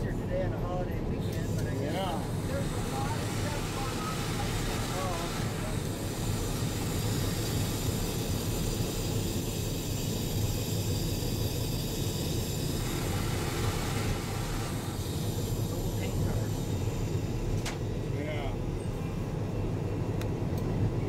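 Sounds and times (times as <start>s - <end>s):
low engine drone: 0.0s - 21.0s
wheels on rails: 1.4s - 17.9s.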